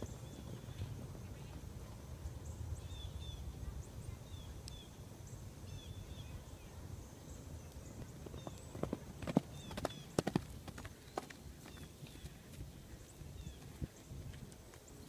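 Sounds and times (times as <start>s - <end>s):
wind rumble on microphone: 0.0s - 10.7s, 11.4s - 15.0s
faint bird chirps: 2.4s - 8.9s
horse hoof clops: 8.2s - 14.9s.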